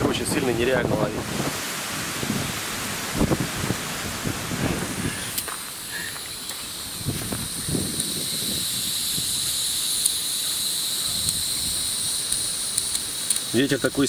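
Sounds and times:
wind buffeting the microphone: 0.0s - 5.5s, 6.2s - 13.0s
insects chirring: 4.8s - 14.0s.

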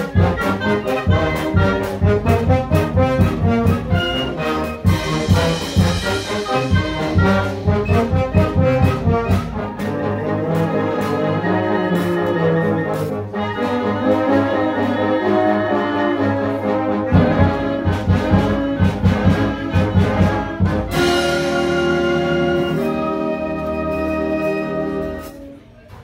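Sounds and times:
low instruments beat: 0.0s - 13.4s
concert band playing: 0.0s - 25.7s.

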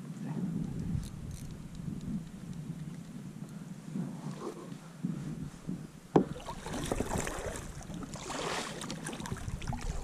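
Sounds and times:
kayak paddle splashing: 6.1s - 10.0s.

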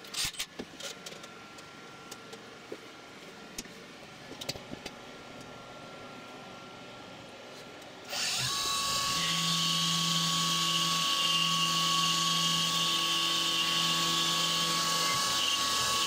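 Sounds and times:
milling machine whine: 8.1s - 16.0s.

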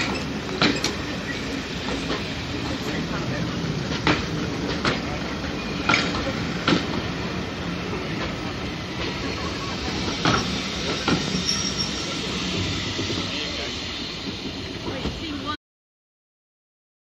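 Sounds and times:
wheels clacking over rail joints: 0.0s - 13.3s
train wheels rumbling on rails: 0.0s - 15.6s.

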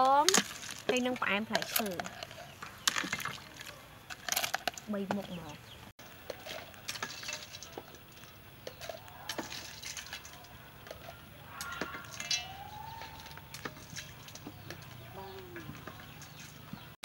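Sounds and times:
spoons clinking on cups and bowl: 6.2s - 8.0s, 8.7s - 16.4s
rooster crowing: 11.4s - 13.6s.

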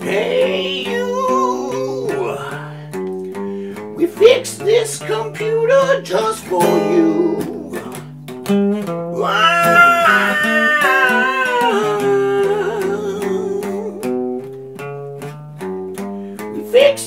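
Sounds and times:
acoustic guitar: 0.0s - 17.0s
man singing a held note: 9.2s - 14.1s.

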